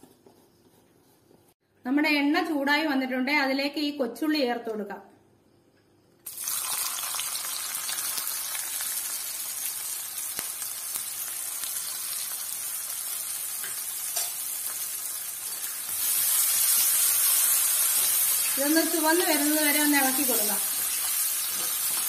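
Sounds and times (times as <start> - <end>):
shallots sizzling in hot oil: 6.3 - 22.0.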